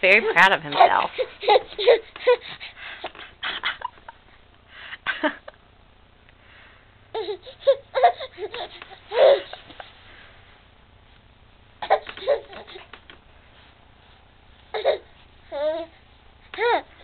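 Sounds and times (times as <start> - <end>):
baby squealing and giggling: 0.7 - 2.6, 7.2 - 9.7, 11.8 - 12.9.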